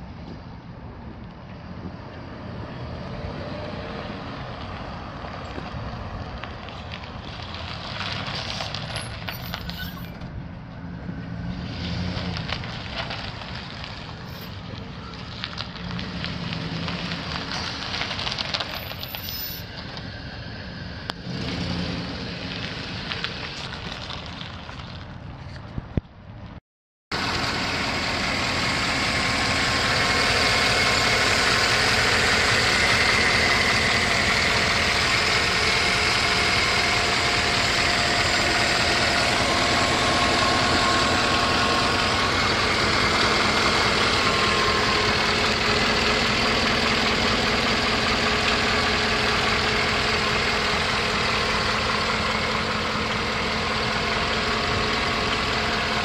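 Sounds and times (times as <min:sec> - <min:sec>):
truck engine idling: 0:27.1 - 0:56.0.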